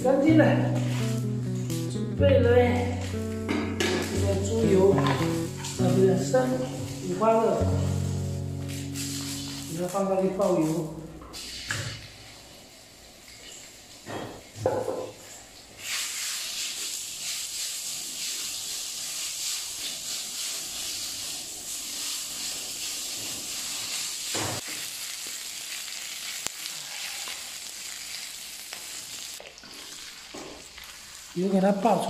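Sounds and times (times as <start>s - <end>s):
pork fat sizzling in a wok: 6.8s - 32.0s.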